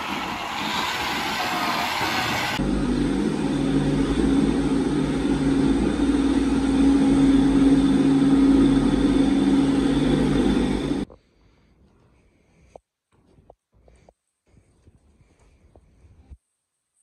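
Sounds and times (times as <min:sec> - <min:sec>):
feed mixer wagon running: 0:02.5 - 0:11.1.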